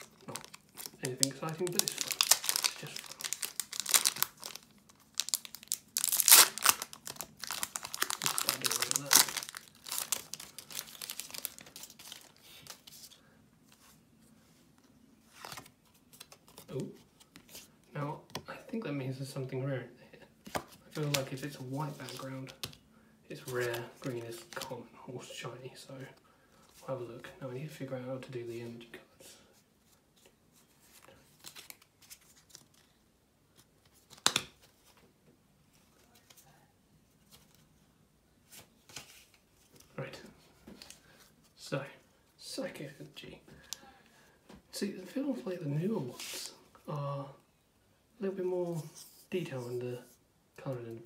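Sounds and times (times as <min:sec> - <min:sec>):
foil wrapper crinkling: 0:00.0 - 0:12.8
cards clicking and rustling: 0:00.0 - 0:13.0, 0:34.0 - 0:34.7.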